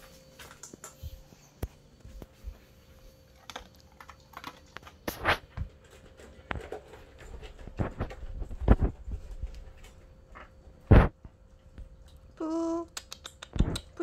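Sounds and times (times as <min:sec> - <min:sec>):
dog crunching food: 0:03.2 - 0:11.1.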